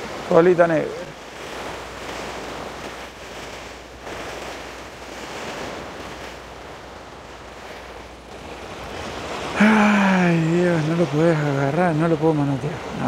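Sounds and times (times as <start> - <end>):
waves washing against rocks: 0.0 - 13.0.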